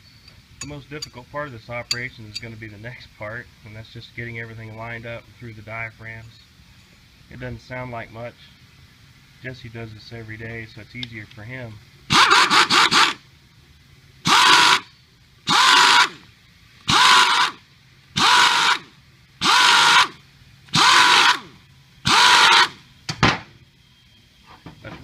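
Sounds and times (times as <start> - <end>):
pneumatic impact wrench bursts: 12.1 - 13.2, 14.2 - 22.9.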